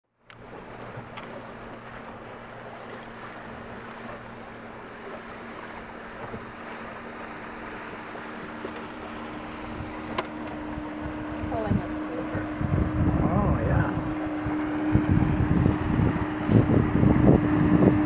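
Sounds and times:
water lapping along a hull: 0.0s - 18.0s
wind on microphone: 8.4s - 18.0s.

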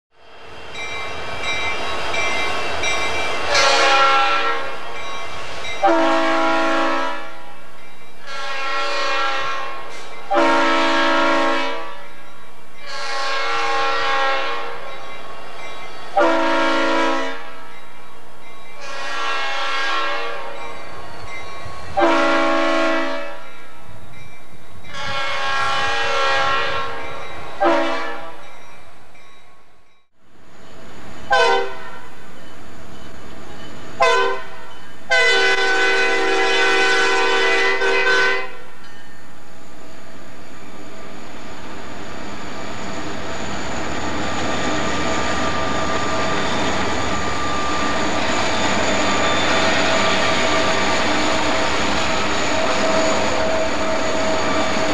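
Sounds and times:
train rumbling: 0.2s - 54.9s
diesel locomotive horn blasts: 3.4s - 4.9s, 5.8s - 7.6s, 8.2s - 12.2s, 12.8s - 14.9s, 16.2s - 17.7s, 18.8s - 20.6s, 21.9s - 23.4s, 24.9s - 28.4s, 31.3s - 32.2s, 34.0s - 38.7s.

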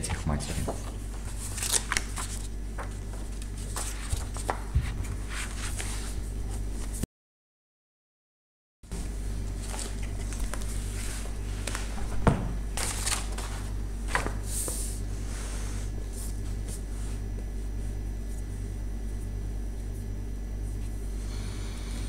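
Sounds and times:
steady low hum: 0.0s - 7.0s, 8.9s - 22.0s
paper pages swishing: 1.2s - 7.0s, 12.8s - 17.2s.

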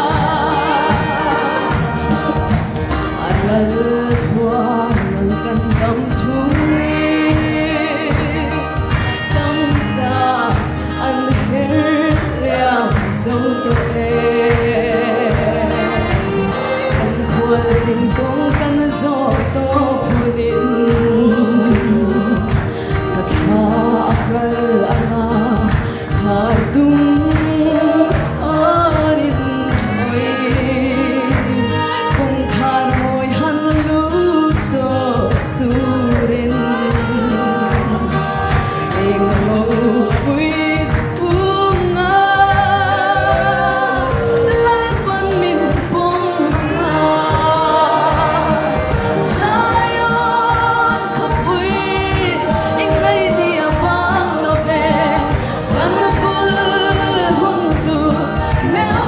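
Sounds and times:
choir singing along: 0.0s - 3.6s, 42.6s - 44.4s, 46.6s - 59.0s
steady beat: 0.0s - 9.4s, 33.7s - 59.0s
woman singing gospel song: 0.0s - 59.0s.

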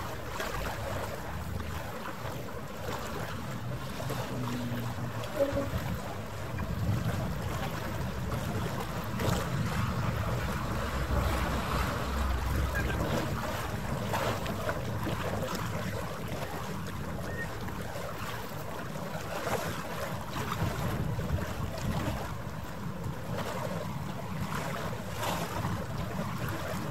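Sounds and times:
harbour water: 0.0s - 26.9s
wind on microphone: 0.0s - 26.9s
steady low rumble: 4.4s - 15.0s.

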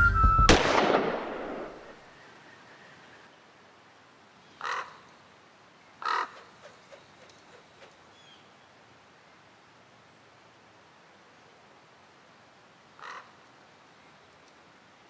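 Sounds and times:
crow cawing: 4.6s - 5.0s, 6.0s - 6.5s, 13.0s - 13.4s.

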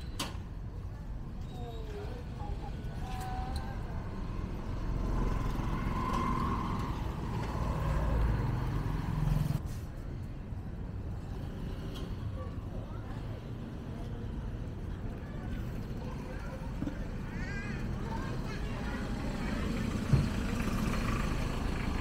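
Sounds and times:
street noise: 0.0s - 22.0s
motor vehicle engine passing: 3.2s - 9.6s, 18.0s - 22.0s.

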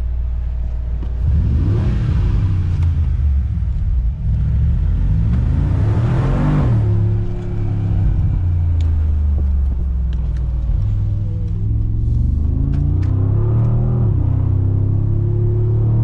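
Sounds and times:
car engine accelerating: 0.0s - 16.0s.

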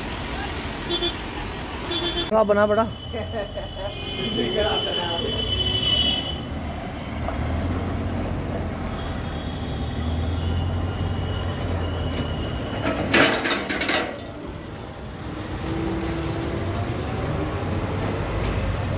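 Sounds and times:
trailer metallic clanking: 10.3s - 14.8s.

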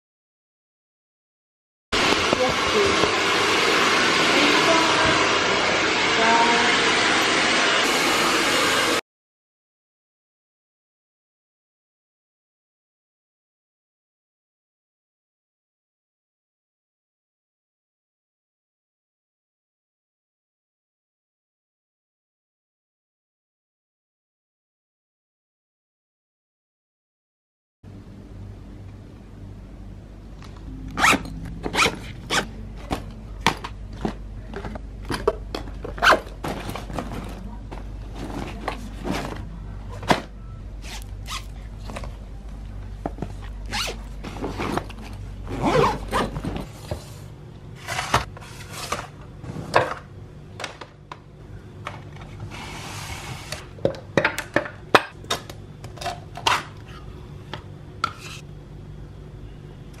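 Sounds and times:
zipper being pulled: 31.0s - 32.6s, 40.8s - 41.6s, 43.6s - 46.7s.

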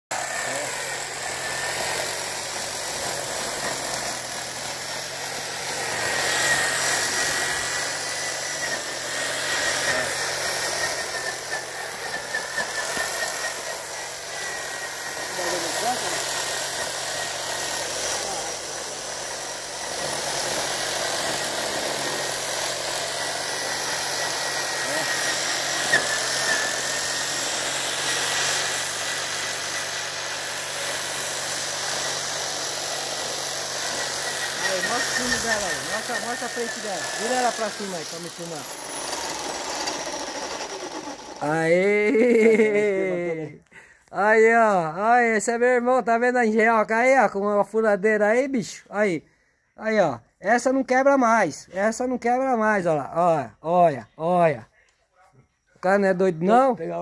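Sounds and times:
electric drill whining: 0.1s - 43.4s.

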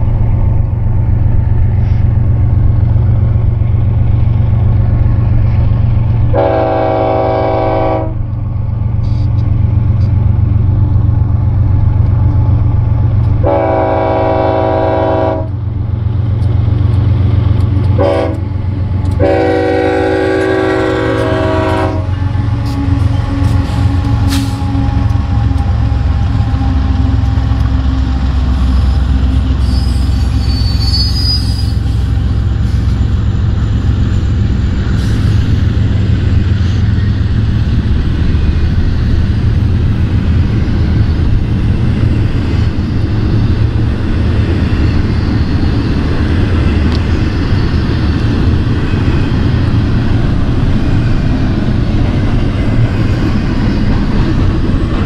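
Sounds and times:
locomotive engine rumble: 0.0s - 55.0s
train wheels on rails: 0.0s - 55.0s
locomotive air horn: 6.3s - 8.2s, 13.4s - 15.6s, 18.0s - 18.4s, 19.2s - 25.1s
faint wheel squeal: 28.8s - 32.1s.

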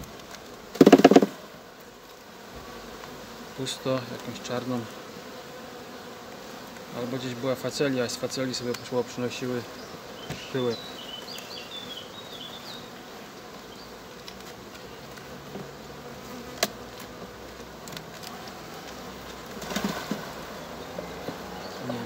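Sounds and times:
honeybees buzzing: 0.0s - 22.0s
hive tool knocking on wood: 0.8s - 1.4s.

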